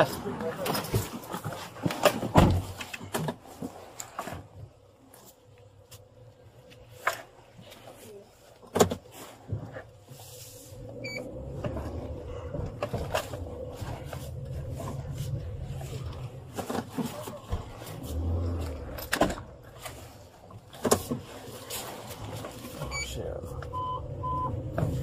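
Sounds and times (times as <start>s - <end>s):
car engine and road rumble: 0.0s - 25.0s
short beep: 22.9s - 24.6s.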